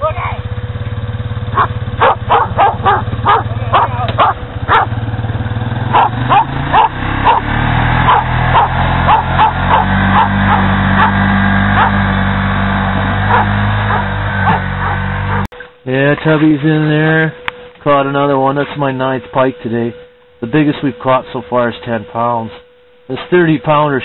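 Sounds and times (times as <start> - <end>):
motor humming: 0.4 - 15.7
dog barking: 1.5 - 5.0, 5.9 - 12.0, 13.3 - 15.5.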